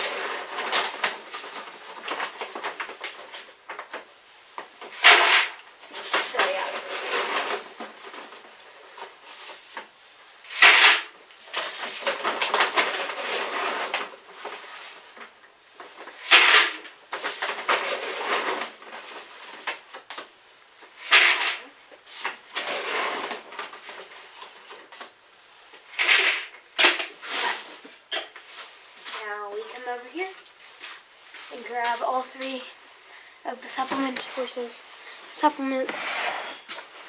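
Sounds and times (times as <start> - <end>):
feed sacks rustling: 4.8 - 9.7, 10.4 - 19.9, 27.1 - 37.0
feed pellets pouring into bucket: 10.5 - 14.6, 16.2 - 19.3, 21.0 - 21.6, 25.9 - 26.5.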